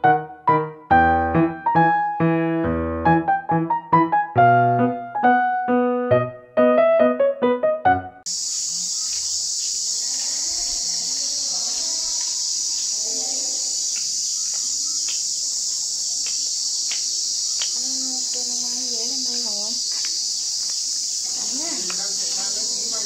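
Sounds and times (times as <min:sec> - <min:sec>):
high-pitched insect chorus: 0:08.3 - 0:23.0.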